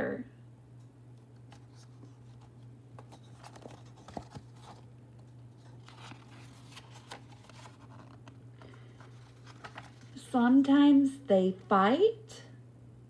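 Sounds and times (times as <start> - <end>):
steady low hum: 0.0 - 13.0
book pages rustling and turning: 1.4 - 10.2.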